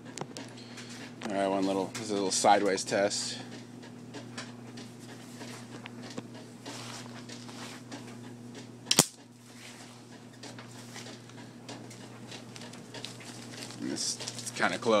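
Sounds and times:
loud sharp electrical snap: 8.9s - 9.2s.

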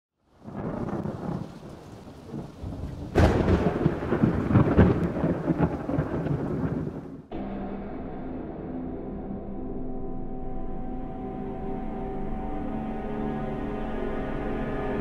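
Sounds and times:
thunder rumbling and cracking: 0.4s - 7.3s.

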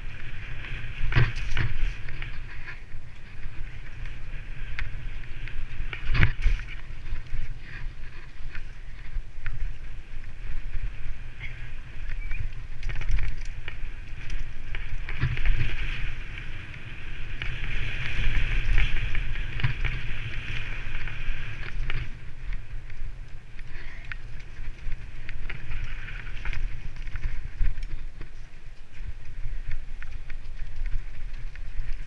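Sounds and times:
bike rattling over bumps: 0.0s - 32.0s
wind buffeting microphone: 0.0s - 32.0s.

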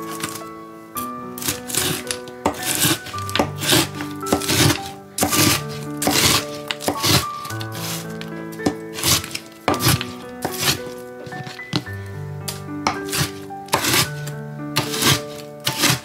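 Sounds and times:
gentle background music: 0.0s - 16.0s
knife chopping on cutting board: 1.7s - 7.2s, 8.6s - 11.8s, 12.9s - 14.1s, 14.8s - 16.0s.

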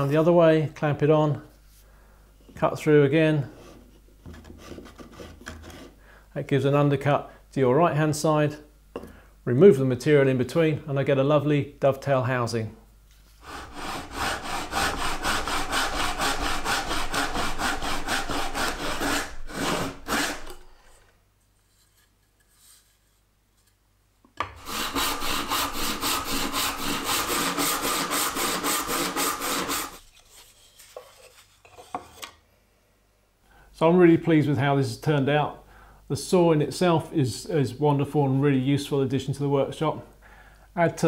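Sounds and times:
hand saw cutting wood: 4.4s - 6.0s, 13.4s - 21.0s, 24.4s - 32.3s.

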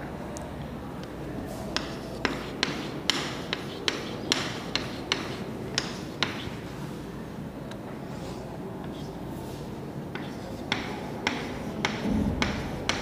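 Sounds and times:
chalk tapping on chalkboard: 1.7s - 6.6s, 10.1s - 13.0s.

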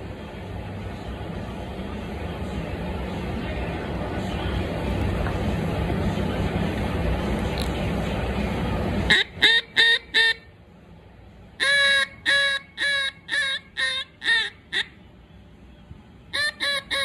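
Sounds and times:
steady rushing noise: 0.0s - 9.4s
duck call quacks: 9.1s - 10.4s, 11.6s - 15.0s, 16.3s - 17.0s.

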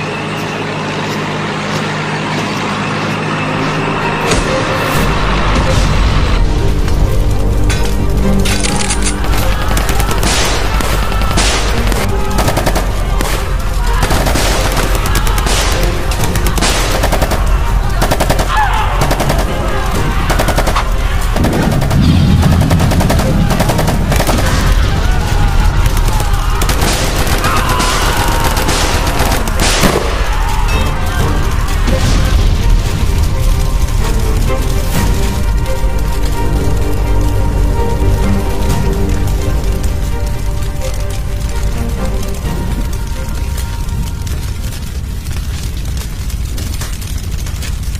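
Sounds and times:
background music: 0.0s - 47.9s
deep rumble: 3.4s - 47.9s
machine-gun and rifle fire: 9.2s - 30.6s.

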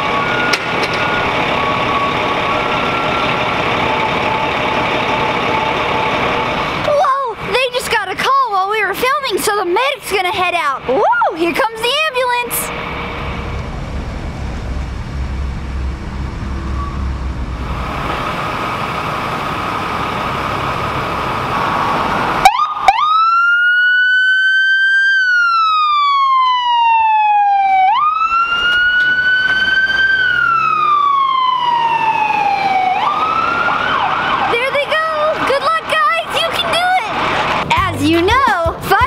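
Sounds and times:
ambulance siren wailing: 0.0s - 7.2s, 19.4s - 36.4s
vehicle engine running: 0.0s - 22.4s, 34.7s - 39.0s.

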